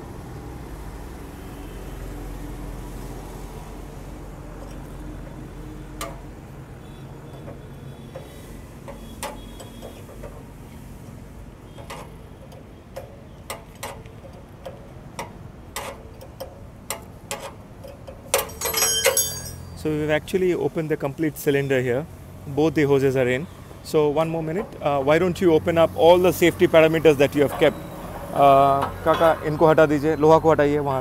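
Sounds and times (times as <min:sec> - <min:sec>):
metal tool clicks and taps: 0:06.0 - 0:06.3, 0:07.3 - 0:10.5, 0:11.8 - 0:19.5.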